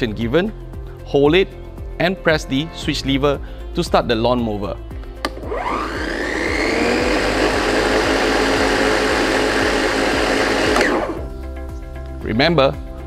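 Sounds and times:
electric lawn mower whining: 5.2 - 11.3.

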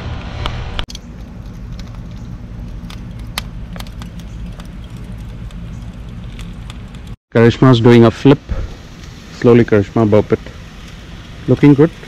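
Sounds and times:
steady low rumble: 0.0 - 12.0
charcoal crackling and popping: 0.8 - 7.2, 8.4 - 12.0
faint hiss: 7.4 - 12.0.

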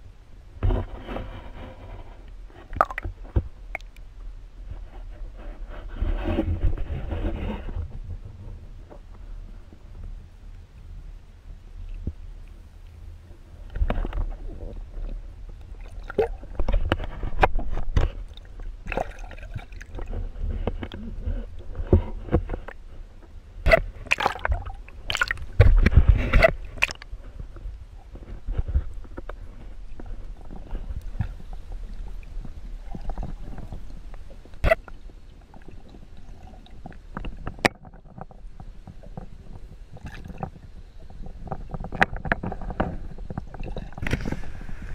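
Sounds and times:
low steady rumble: 0.0 - 44.9
underwater gurgling and sloshing: 0.0 - 44.9
small underwater clicks: 2.3 - 4.1, 23.7 - 27.6.

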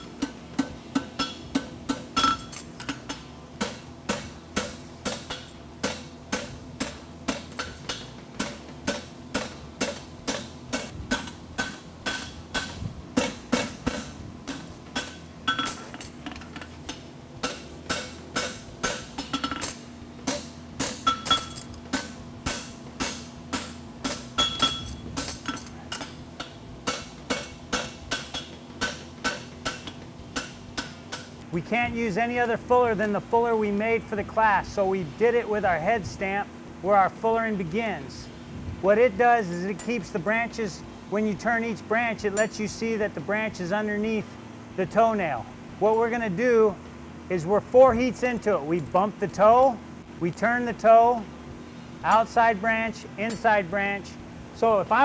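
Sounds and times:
hammer striking metal on anvil: 0.0 - 15.8, 16.9 - 31.4.

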